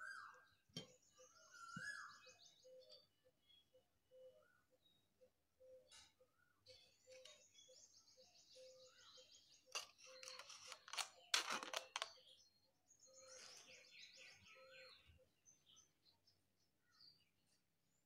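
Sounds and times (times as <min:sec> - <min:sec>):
birds chirping: 0:00.0 - 0:17.4.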